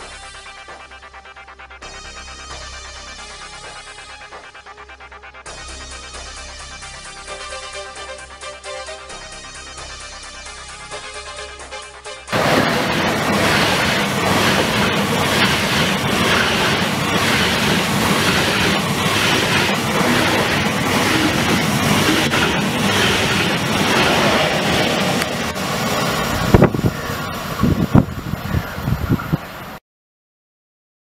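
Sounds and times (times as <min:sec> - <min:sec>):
high-speed train passing: 0:12.3 - 0:29.8
wheels clattering on rails: 0:12.4 - 0:29.8.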